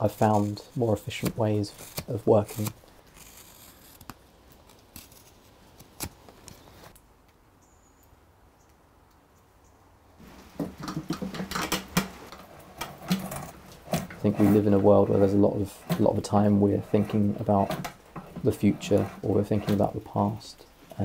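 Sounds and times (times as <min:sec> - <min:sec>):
drawknife scraping wood: 0:00.0 - 0:06.7, 0:10.8 - 0:21.0
knife slicing wood shavings: 0:00.0 - 0:06.8.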